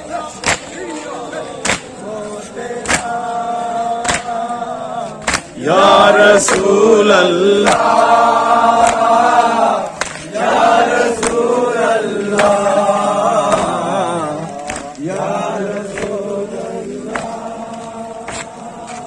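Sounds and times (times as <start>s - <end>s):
men chanting together: 0.0s - 19.0s
hands slapping chests: 0.4s - 0.8s, 1.6s - 2.0s, 2.8s - 3.2s, 4.0s - 4.4s, 5.2s - 5.6s, 6.4s - 6.8s, 7.6s - 8.1s, 8.7s - 10.4s, 11.0s - 11.5s, 12.2s - 13.9s, 14.5s - 16.2s, 17.1s - 17.4s, 18.2s - 19.0s.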